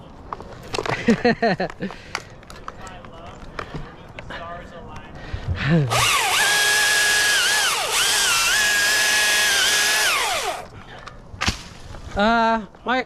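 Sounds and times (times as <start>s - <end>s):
chainsaw cutting wood: 5.9s - 10.7s.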